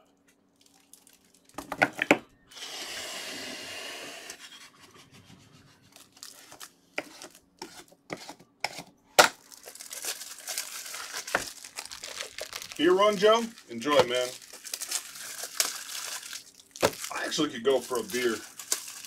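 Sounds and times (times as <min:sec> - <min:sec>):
plastic wrapping tearing: 0:00.6 - 0:01.6, 0:05.9 - 0:07.4, 0:09.2 - 0:19.0.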